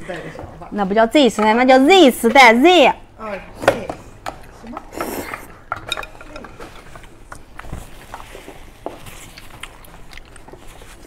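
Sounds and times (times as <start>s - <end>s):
soft chewing: 6.5s - 11.0s.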